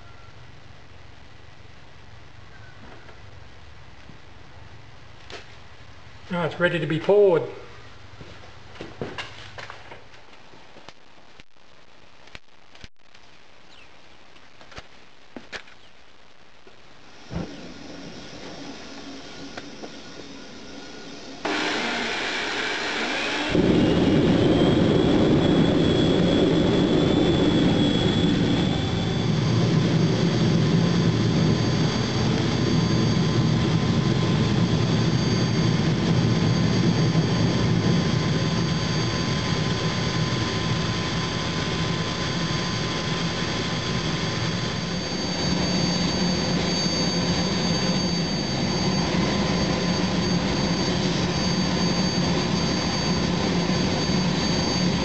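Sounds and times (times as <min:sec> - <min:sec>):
furnace burner flame roaring: 0:17.0 - 0:55.0.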